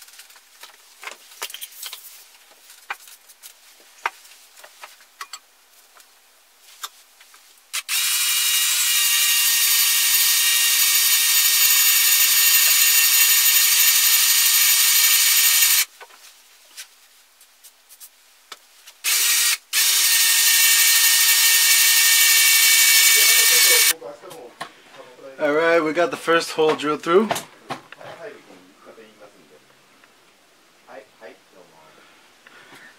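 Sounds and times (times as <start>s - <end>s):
drill whining through metal: 7.8s - 15.9s, 19.0s - 23.9s.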